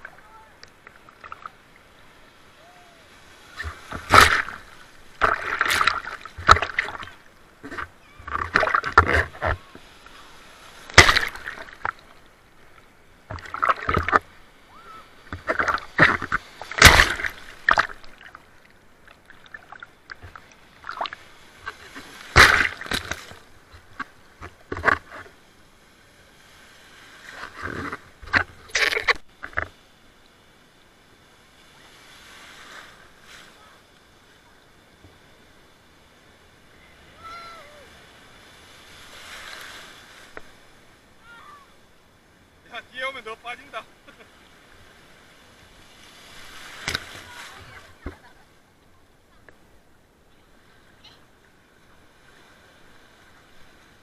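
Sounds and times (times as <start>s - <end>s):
water splashing and sloshing: 0.0s - 54.0s.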